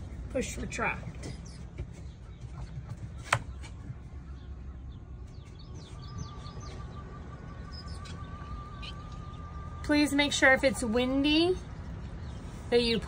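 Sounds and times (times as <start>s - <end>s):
birds chirping: 0.0s - 13.0s
low rumble: 3.9s - 12.8s.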